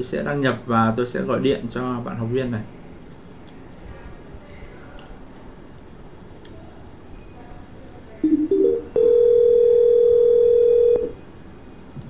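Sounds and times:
ringback tone: 8.2 - 11.2.

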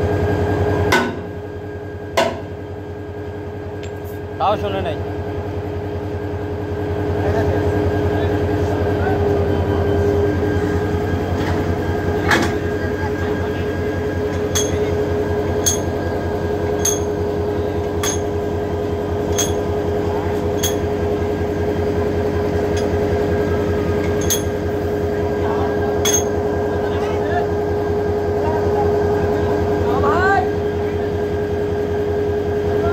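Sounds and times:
diesel locomotive engine idling: 0.0 - 32.9
sharp metallic clank: 14.5 - 14.9, 16.8 - 17.2, 18.0 - 18.3, 26.0 - 26.4.

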